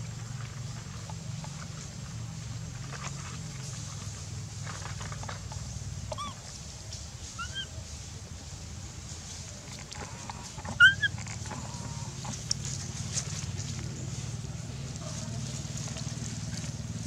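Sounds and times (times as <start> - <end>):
macaque squeaks: 6.1 - 6.4, 7.4 - 7.7, 10.6 - 11.2.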